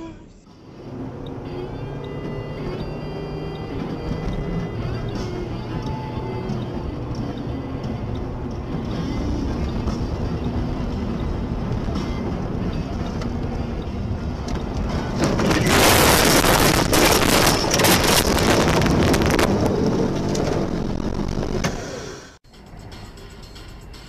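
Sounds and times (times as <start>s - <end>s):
car cabin noise: 0.0s - 22.4s
car crashing and scraping through snow: 15.1s - 22.2s.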